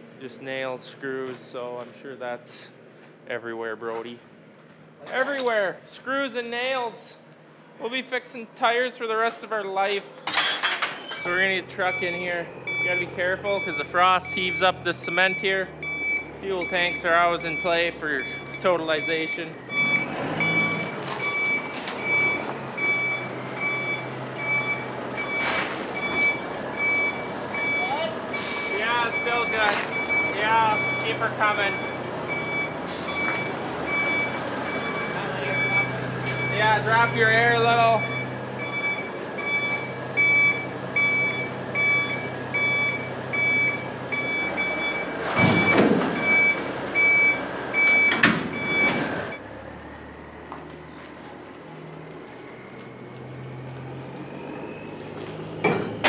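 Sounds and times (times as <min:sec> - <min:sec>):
truck reversing alarm beeping: 0:11.1 - 0:56.0
diesel engine hum: 0:11.2 - 0:56.0.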